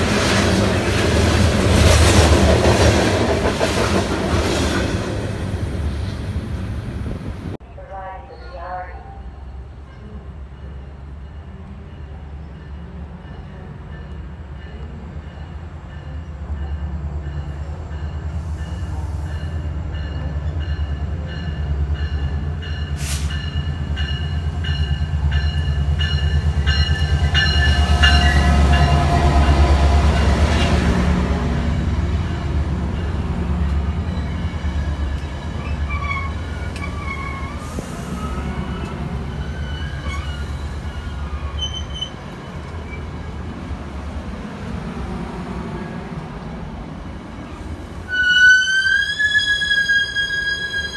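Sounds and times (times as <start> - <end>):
train wheel squeal: 34.0 - 43.1, 48.1 - 50.9.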